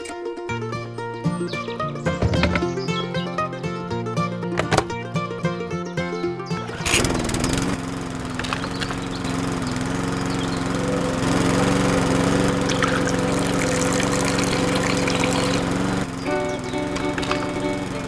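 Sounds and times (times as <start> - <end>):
small motor humming: 6.4 - 18.0.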